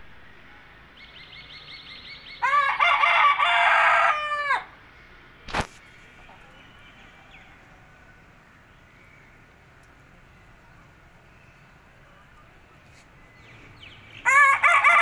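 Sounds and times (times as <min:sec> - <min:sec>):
rooster crowing: 0:02.4 - 0:04.8, 0:14.2 - 0:15.0.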